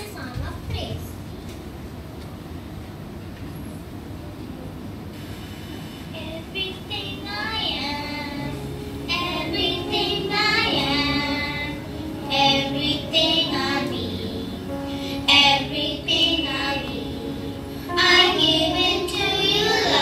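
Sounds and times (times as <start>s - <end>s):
children singing: 6.9s - 20.0s
low sustained note: 8.1s - 20.0s.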